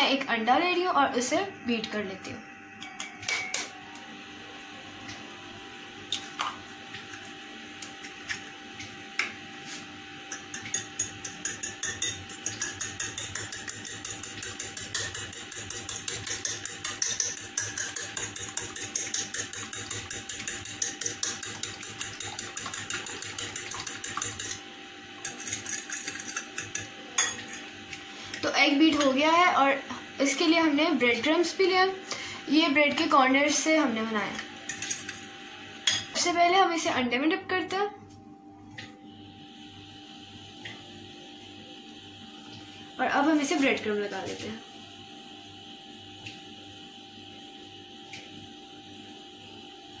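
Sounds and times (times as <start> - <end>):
fork clinking against a plate: 10.3 - 24.6
spoon tapping an egg: 10.3 - 24.6.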